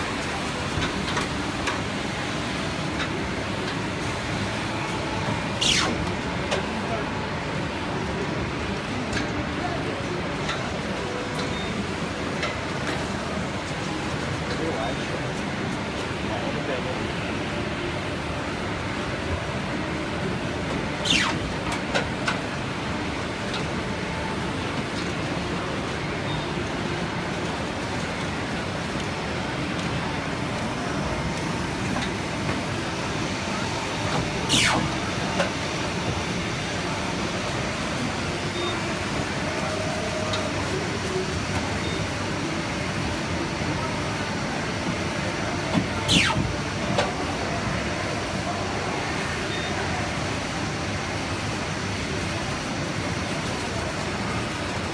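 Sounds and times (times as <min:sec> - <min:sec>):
paper cutting machine running: 0:19.4 - 0:54.9
paper cutter line rushing: 0:21.0 - 0:21.6, 0:34.1 - 0:35.0, 0:45.7 - 0:46.5.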